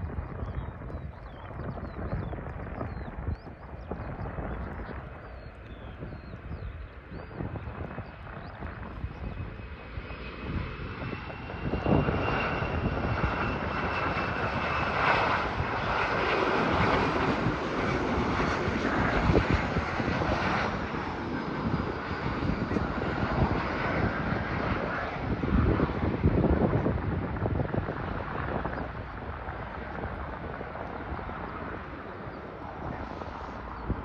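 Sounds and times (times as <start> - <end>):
jet passing overhead: 0.0 - 34.0.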